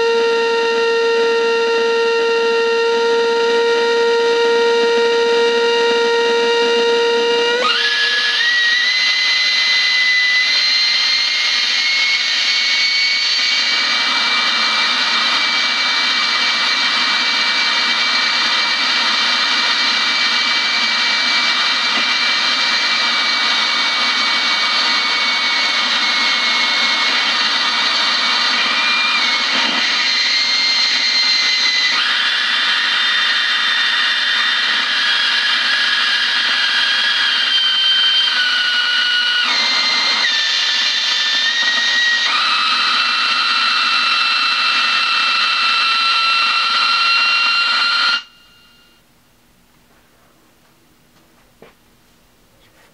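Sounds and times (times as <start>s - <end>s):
high whistling feedback tones: 0.0s - 49.0s.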